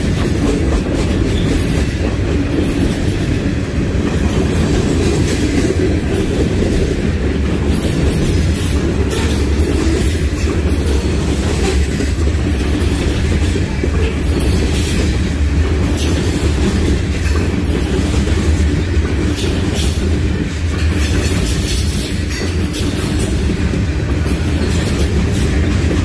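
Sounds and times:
freight train rumbling: 0.0s - 26.0s
wheels clacking over rail joints: 0.0s - 26.0s.

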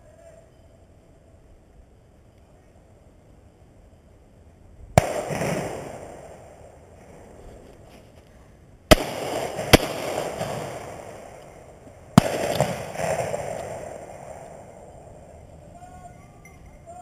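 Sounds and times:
shotgun shots with echo: 5.0s - 6.6s, 8.9s - 14.9s.

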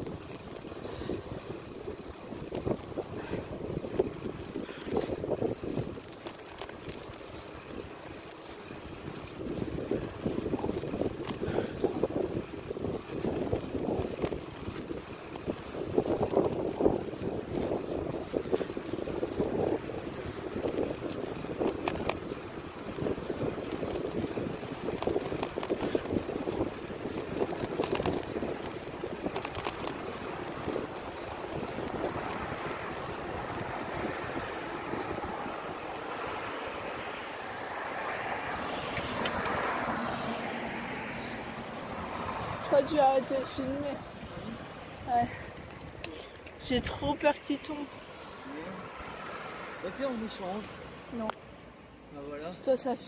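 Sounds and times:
wind buffeting microphone: 0.0s - 35.9s
bicycle rattling on rough tarmac: 0.0s - 53.0s.

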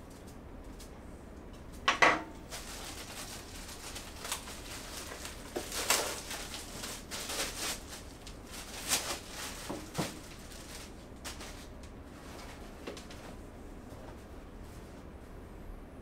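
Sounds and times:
rustles: 2.4s - 15.1s.

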